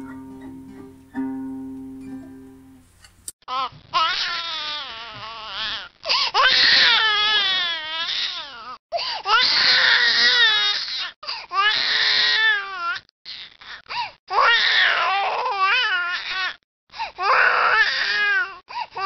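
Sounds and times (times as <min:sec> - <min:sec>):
infant crying: 0:03.5 - 0:16.6, 0:17.2 - 0:19.0.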